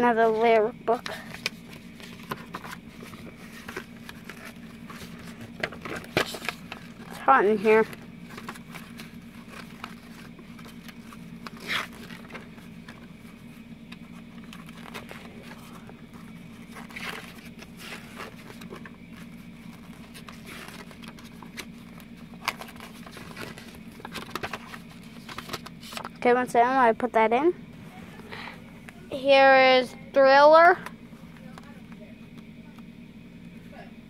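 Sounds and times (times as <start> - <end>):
paper pages rustling: 1.1 - 26.2.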